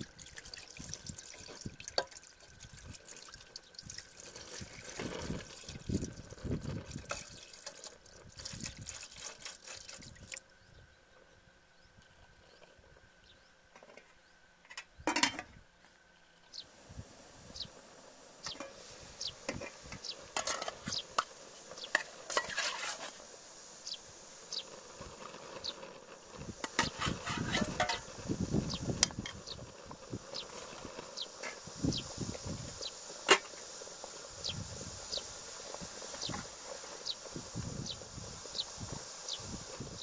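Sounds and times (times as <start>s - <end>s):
cooking pot and utensils clinking: 14.7s - 15.5s, 20.3s - 21.3s, 21.9s - 23.1s, 26.6s - 28.1s.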